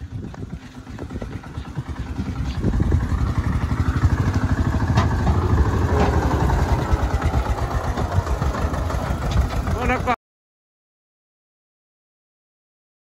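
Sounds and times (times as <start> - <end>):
tractor diesel engine chugging: 0.0 - 10.2
sharp knocks: 4.9 - 6.3.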